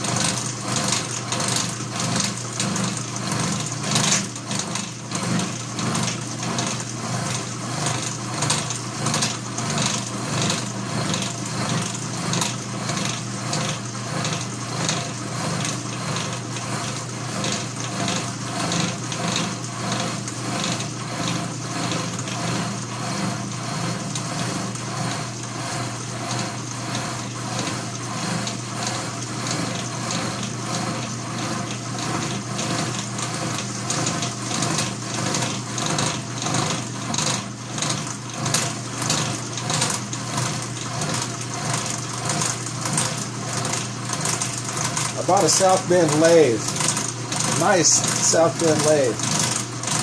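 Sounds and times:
milling machine humming: 0.0s - 50.0s
pulsing metal cutting: 39.2s - 50.0s.

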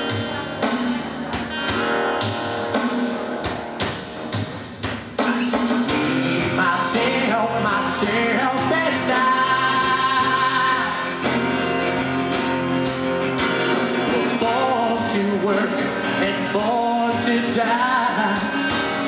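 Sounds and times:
live rock band playing: 0.0s - 19.0s
man singing: 5.2s - 11.8s, 13.9s - 19.0s.

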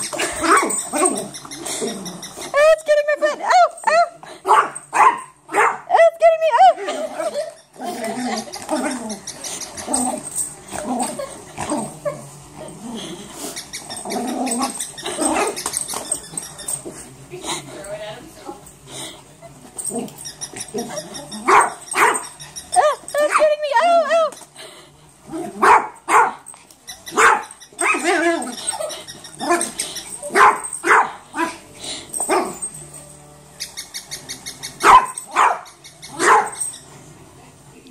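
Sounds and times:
dog barking: 4.5s - 5.9s, 21.5s - 22.3s, 25.6s - 26.5s, 27.1s - 28.2s, 30.3s - 31.6s, 34.8s - 36.6s.

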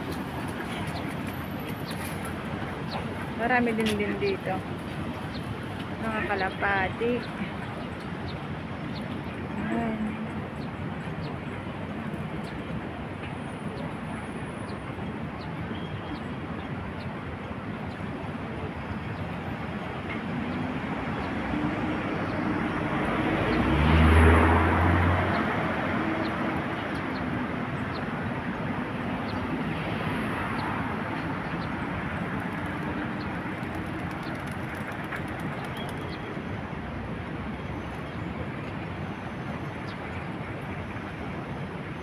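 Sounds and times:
city traffic noise: 0.0s - 42.0s
heavy vehicle passing: 22.7s - 27.2s.

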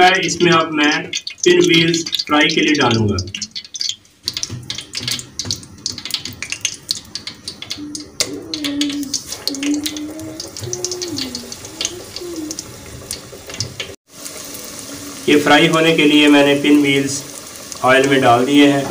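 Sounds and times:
hot oil crackling in a pot: 0.0s - 18.9s
low wavering call: 7.8s - 12.6s.

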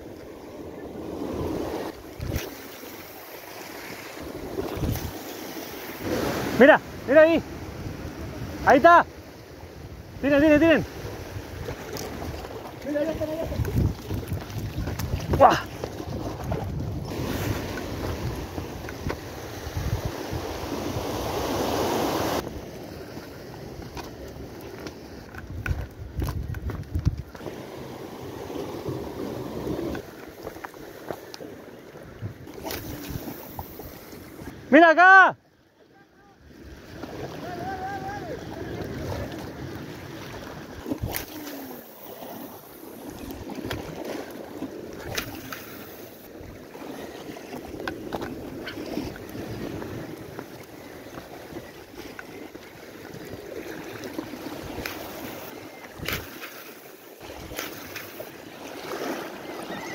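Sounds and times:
surf washing through rocks: 0.0s - 26.1s, 27.3s - 35.3s, 36.1s - 59.9s
wind buffeting microphone: 4.2s - 5.3s, 10.8s - 22.7s, 25.3s - 27.6s.

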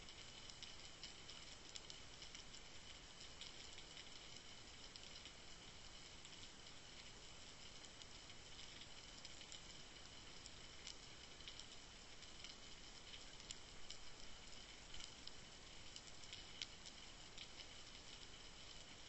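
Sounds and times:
small clicks and crackles: 0.0s - 19.0s.

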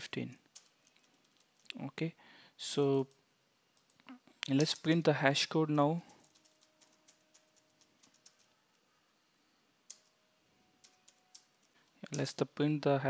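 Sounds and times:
faint keyboard typing: 0.0s - 1.9s, 2.8s - 5.1s, 6.0s - 9.0s, 9.8s - 12.4s.

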